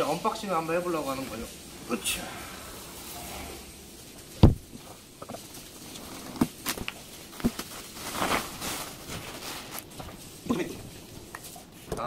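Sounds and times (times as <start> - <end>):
plastic wrap rustling: 0.0 - 12.0
heavy box thump: 4.4 - 4.7.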